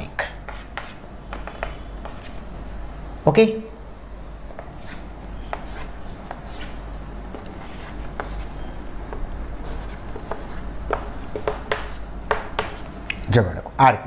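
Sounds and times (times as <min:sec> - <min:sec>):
chalk scratching on chalkboard: 0:00.2 - 0:02.5, 0:04.6 - 0:08.6, 0:09.6 - 0:12.9.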